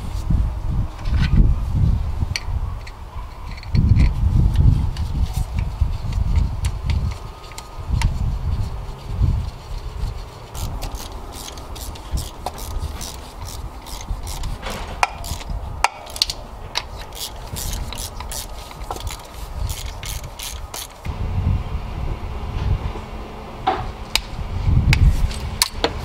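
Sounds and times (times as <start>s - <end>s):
ratchet wrench clicking: 10.6s - 21.1s.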